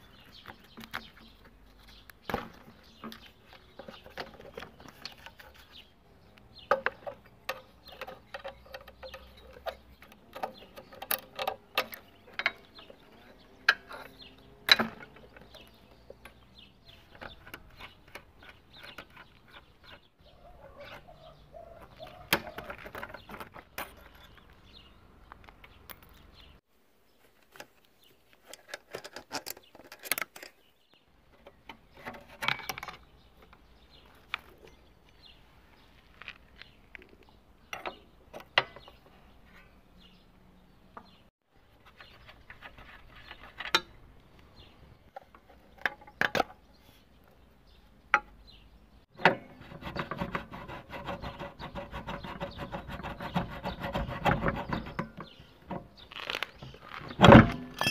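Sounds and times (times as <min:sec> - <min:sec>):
tools clinking on metal: 0:57.3 - 0:57.9.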